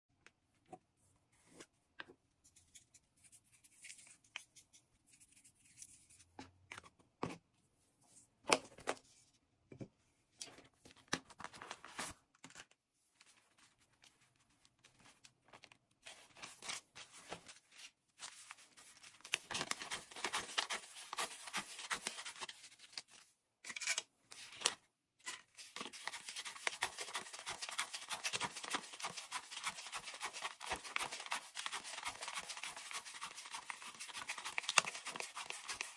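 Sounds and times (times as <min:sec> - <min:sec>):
banknotes tapping and rustling: 0:18.2 - 0:23.1, 0:25.6 - 0:35.9.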